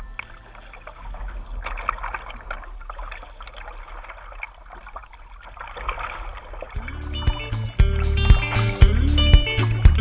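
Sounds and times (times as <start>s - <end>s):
water splashing against kayak hull: 0.0s - 9.0s.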